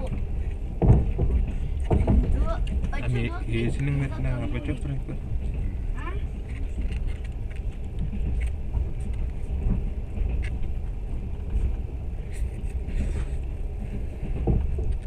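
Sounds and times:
train rumble from inside carriage: 0:00.0 - 0:15.0.

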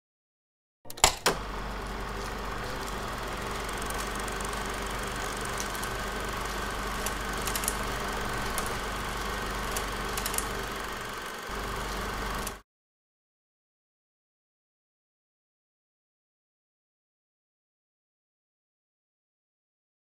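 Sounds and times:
film projector running hum: 0:00.9 - 0:12.6
clicks and crackles: 0:02.1 - 0:11.1.

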